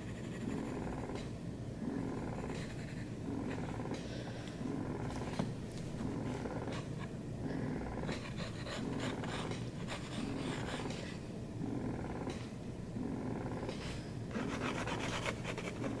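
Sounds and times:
cat purring: 0:13.0 - 0:13.8.

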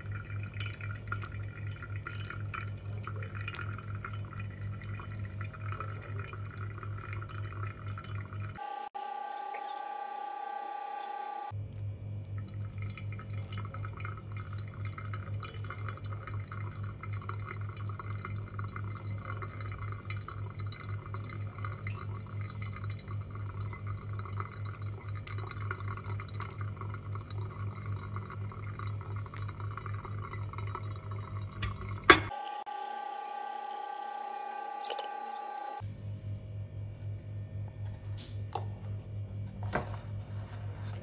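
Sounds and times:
water trickling onto coffee grounds: 0:00.0 - 0:08.6, 0:12.2 - 0:35.8.

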